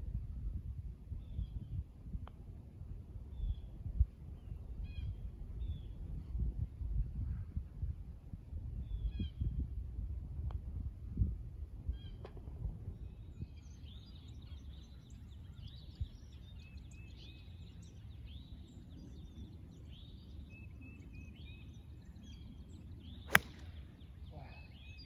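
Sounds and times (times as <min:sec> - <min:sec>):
golf club striking ball: 0:23.3 - 0:23.8.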